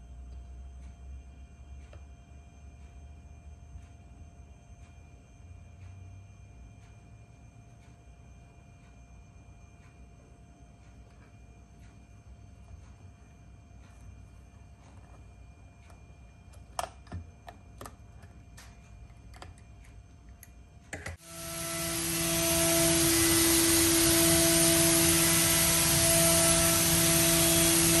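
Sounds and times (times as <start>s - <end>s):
milling machine whine and hiss: 21.1s - 28.0s.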